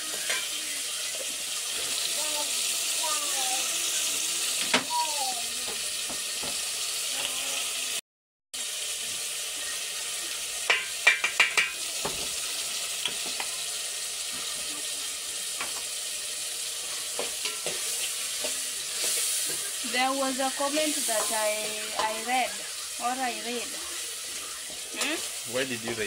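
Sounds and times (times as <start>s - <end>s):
tomatoes sizzling in a pot: 0.0s - 8.0s, 8.6s - 26.0s
spoon scraping a metal pot: 16.8s - 19.8s.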